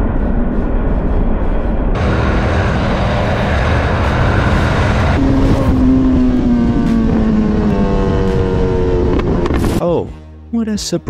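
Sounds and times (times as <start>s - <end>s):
wind and road noise: 0.0s - 9.9s
motorcycle engine: 2.0s - 10.8s.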